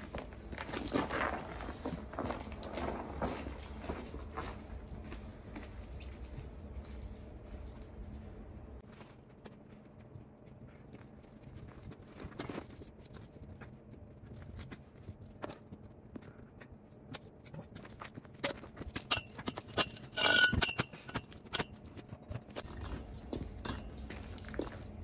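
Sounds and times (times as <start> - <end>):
ringing metal clank: 19.1 - 21.2
scrapes on concrete: 19.1 - 21.7
footsteps: 21.8 - 25.0.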